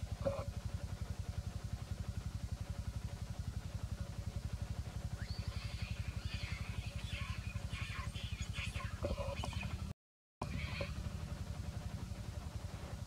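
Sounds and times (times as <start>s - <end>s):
motorcycle engine idling: 0.0s - 13.0s
monkeys screaming: 5.2s - 9.8s.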